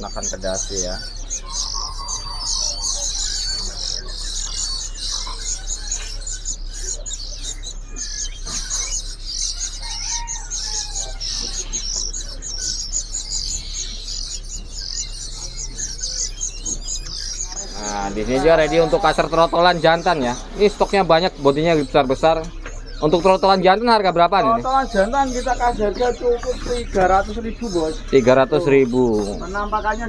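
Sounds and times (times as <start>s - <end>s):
songbirds chirping and twittering: 0.0s - 30.0s.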